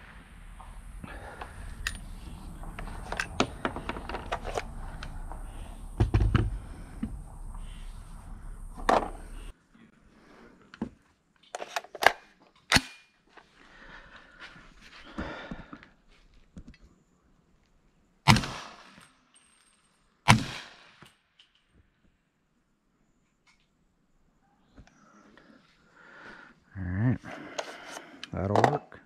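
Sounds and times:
heavy thump: 2.6s - 7.8s.

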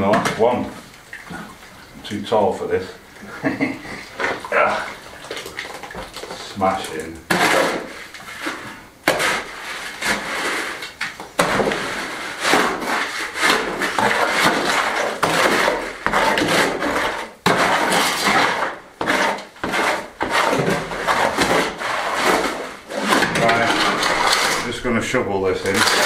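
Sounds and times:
shovel scraping in wheelbarrow: 7.3s - 24.9s, 25.6s - 26.0s.

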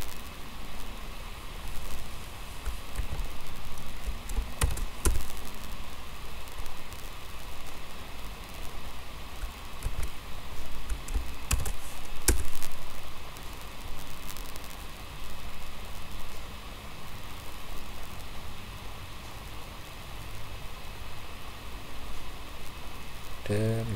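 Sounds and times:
steady background hiss: 0.0s - 23.9s
mouse and keyboard clicks: 2.6s - 3.3s, 4.0s - 5.4s, 9.4s - 10.2s, 10.8s - 12.7s.

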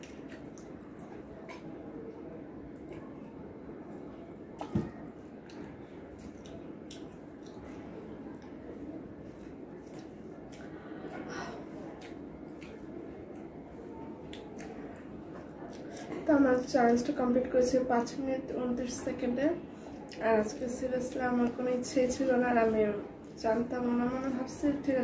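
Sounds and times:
chewing and wet mouth noises: 0.0s - 1.8s, 4.6s - 16.2s
room hum: 0.0s - 25.0s.

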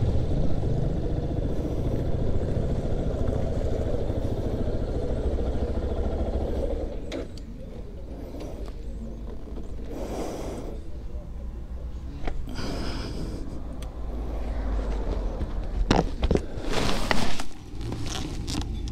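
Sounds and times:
motorcycle engine idling: 0.0s - 13.1s.

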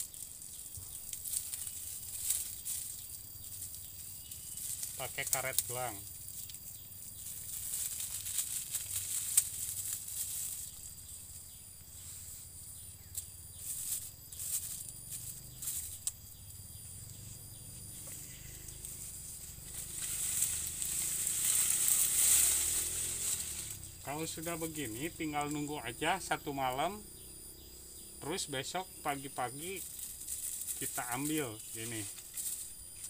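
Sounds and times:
high insect drone: 0.0s - 33.0s
leaves and stalks rustling: 0.0s - 33.0s
plastic bag crinkling: 7.3s - 10.8s.

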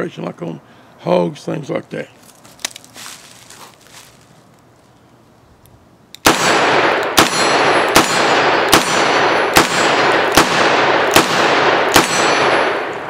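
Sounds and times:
loud revolver shots echoing: 6.2s - 13.0s.

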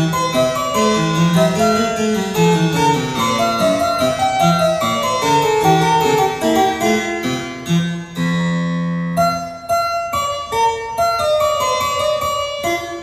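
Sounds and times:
harpsichord music: 0.0s - 13.0s.

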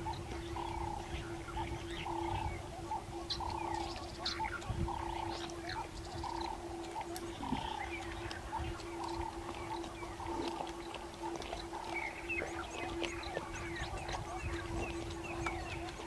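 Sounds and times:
steady low drone: 0.0s - 16.0s.

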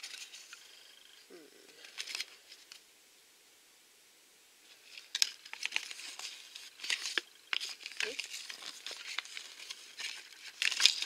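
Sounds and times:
paper leaflet crinkling: 0.0s - 0.6s, 1.8s - 2.8s, 4.7s - 11.0s.

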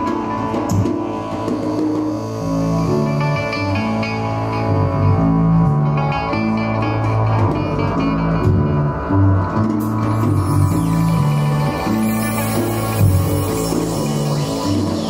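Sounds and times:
held low bass notes: 2.3s - 15.0s
amplified mandola picking melody: 3.0s - 15.0s.

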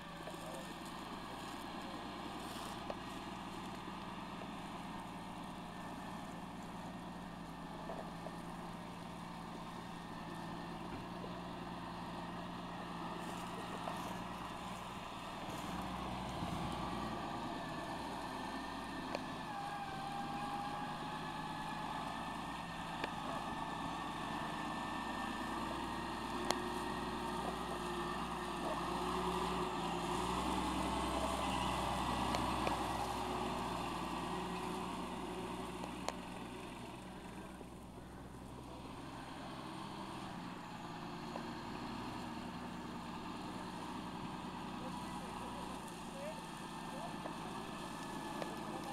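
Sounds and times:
tractor engine under load: 0.0s - 48.9s.

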